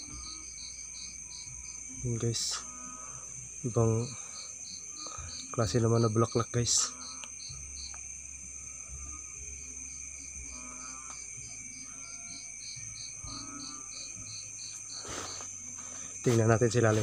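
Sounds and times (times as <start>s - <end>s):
cricket chirping: 0.0s - 17.0s
high insect drone: 0.0s - 17.0s.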